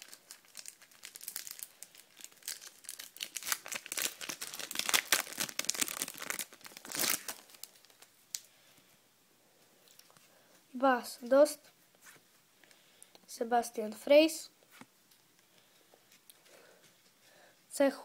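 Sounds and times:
foil packet tearing and crinkling: 0.0s - 8.4s.

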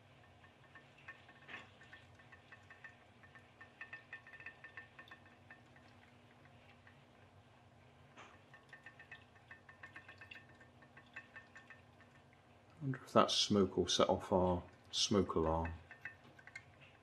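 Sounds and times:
pop-pop boat rapid ticking: 0.0s - 7.0s, 8.4s - 12.4s, 14.4s - 17.0s.

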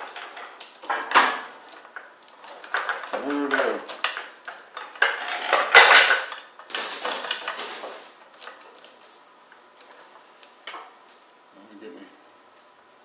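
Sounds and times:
steel chains rattling: 0.0s - 9.1s.

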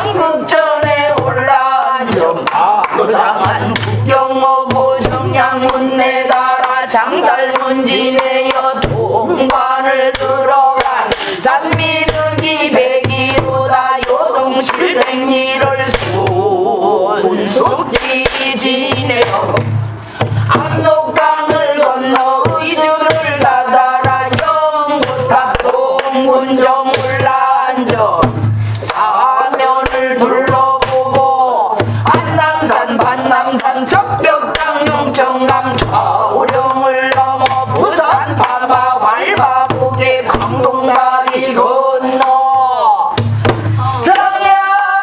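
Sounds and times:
woman singing: 0.0s - 19.7s, 20.5s - 43.2s, 43.8s - 45.0s
low drum thuds: 27.0s - 29.0s, 42.6s - 44.1s.

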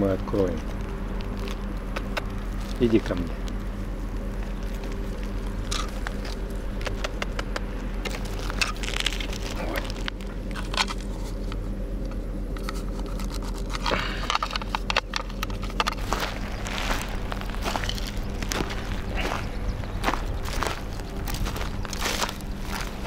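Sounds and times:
steady low hum: 0.0s - 23.0s
metal tin crinkling and clicking: 4.6s - 18.7s.

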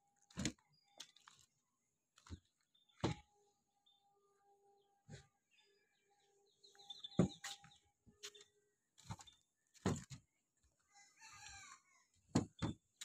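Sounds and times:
knocks and thuds: 7.1s - 7.4s, 9.8s - 10.2s, 12.3s - 12.8s.

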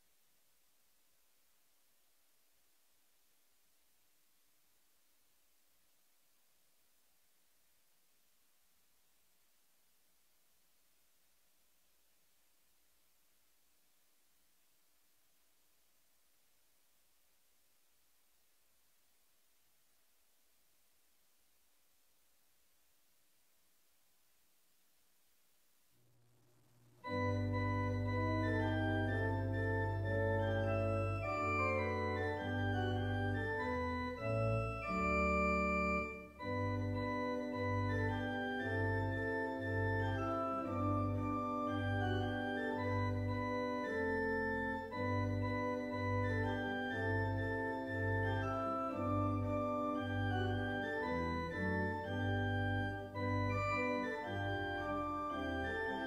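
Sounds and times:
organ chords: 26.9s - 56.0s.

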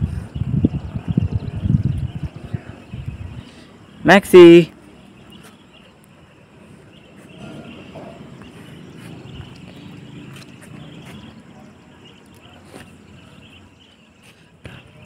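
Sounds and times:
footsteps on concrete: 7.1s - 11.5s, 12.6s - 13.0s.

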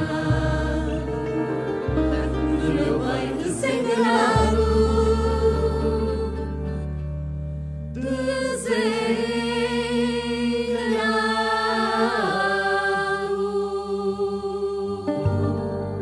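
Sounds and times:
steady low drone: 0.0s - 10.8s.

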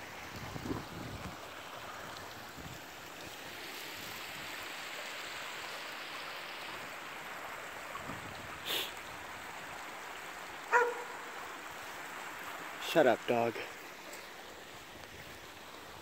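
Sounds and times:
creek water rushing: 0.0s - 16.0s
dog bark: 10.7s - 11.4s.

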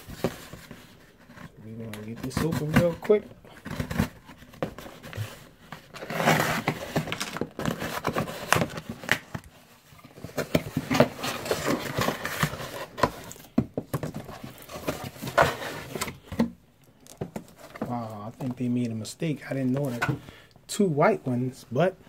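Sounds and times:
clicks and knocks of boxes: 0.1s - 18.6s
cardboard tearing and rustling: 2.1s - 16.3s.

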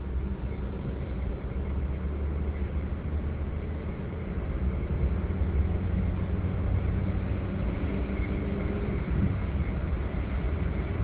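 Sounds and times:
car engine and tyre rumble: 0.0s - 11.0s
road noise hiss: 0.0s - 11.0s.

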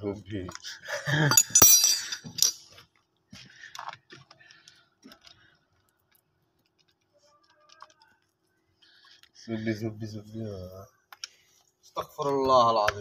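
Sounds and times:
metallic clinking and ticking: 1.3s - 2.6s.

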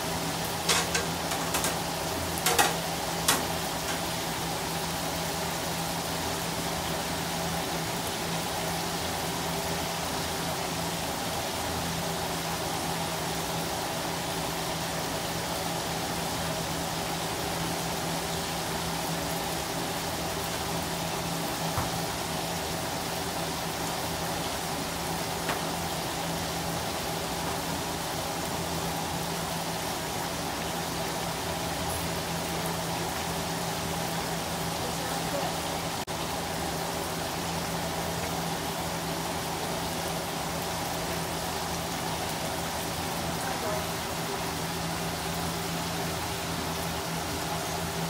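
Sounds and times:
oil sizzling while deep-frying: 0.0s - 48.0s.

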